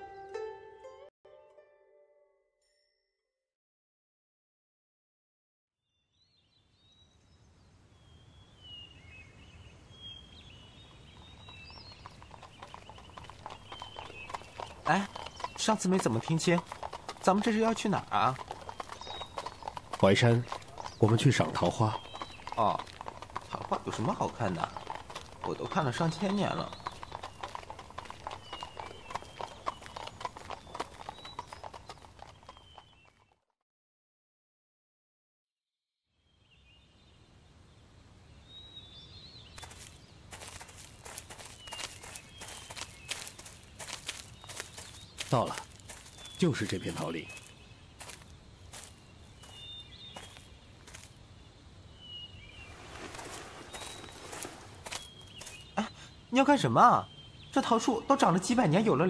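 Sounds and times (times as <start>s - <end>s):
birds chirping: 6.0s - 33.4s, 36.2s - 59.0s
horse hooves clopping: 10.9s - 33.4s, 39.5s - 51.2s, 52.7s - 55.8s.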